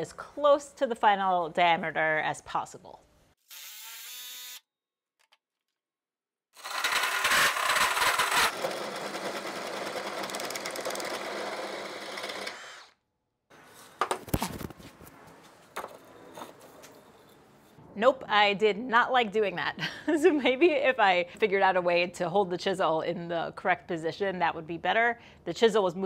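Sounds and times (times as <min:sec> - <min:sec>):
power drill running: 0:03.4 - 0:04.6, 0:06.6 - 0:13.0
chisel shaving wood: 0:06.6 - 0:12.9.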